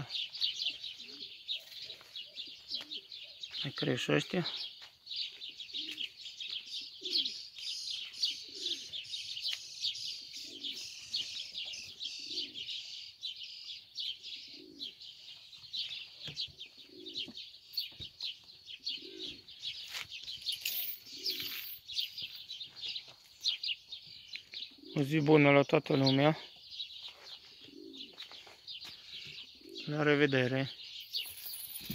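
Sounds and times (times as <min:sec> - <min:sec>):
small birds chirping: 0:00.0 - 0:31.9
dove cooing: 0:00.6 - 0:03.4, 0:05.4 - 0:06.2, 0:06.8 - 0:07.4, 0:08.0 - 0:09.3, 0:10.1 - 0:12.9, 0:14.2 - 0:15.2, 0:16.2 - 0:18.1, 0:18.7 - 0:19.8, 0:20.7 - 0:21.8, 0:24.6 - 0:25.2, 0:27.4 - 0:28.5, 0:29.2 - 0:30.0.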